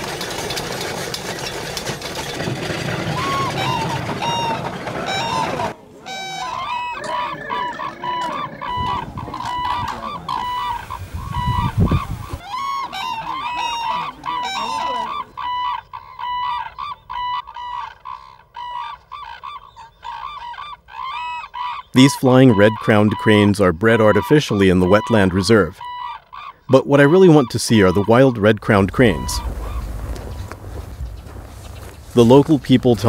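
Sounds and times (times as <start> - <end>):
cranes calling: 0.0 - 33.0
low rumble: 28.9 - 32.9
vehicle engine running: 29.4 - 33.0.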